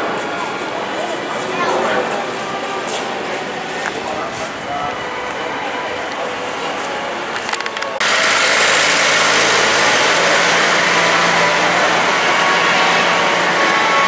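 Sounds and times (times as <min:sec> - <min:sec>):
engine and road rumble: 0:06.4 - 0:14.0.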